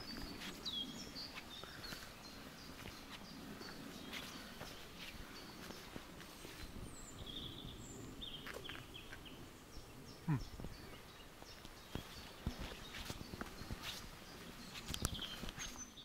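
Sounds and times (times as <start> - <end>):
footsteps on a path: 0.0 - 9.3, 10.5 - 16.0
small birds chirping: 0.0 - 16.0.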